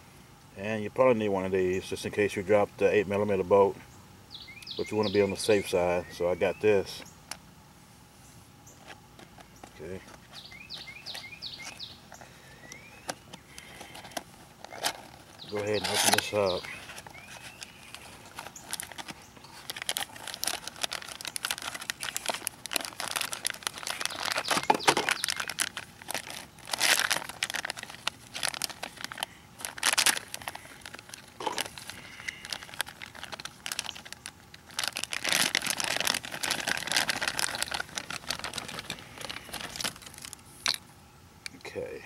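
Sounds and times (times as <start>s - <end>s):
plastic bag crinkling: 13.0s - 40.8s.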